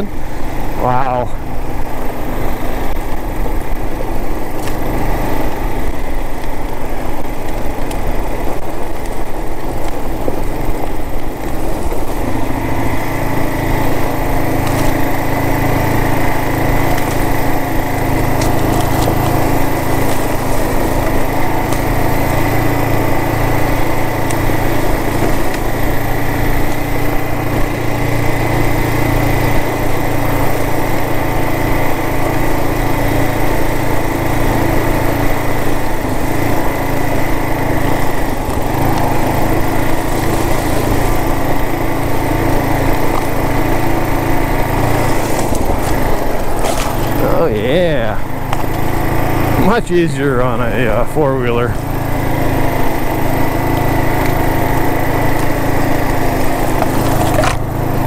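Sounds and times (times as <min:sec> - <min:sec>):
motorcycle engine running: 0:00.0 - 0:58.0
tyres over loose rock: 0:02.9 - 0:58.0.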